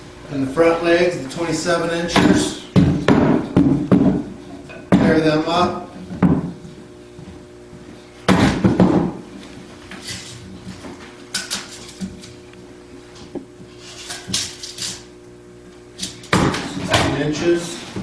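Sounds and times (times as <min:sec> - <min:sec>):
wooden knocks on workbench: 0:06.2 - 0:06.6.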